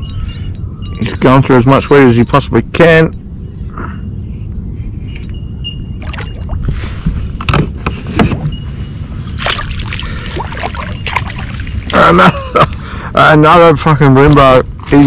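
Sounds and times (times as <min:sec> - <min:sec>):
steady low rumble: 0:00.0 - 0:15.0
fish splashing at water surface: 0:09.4 - 0:12.0.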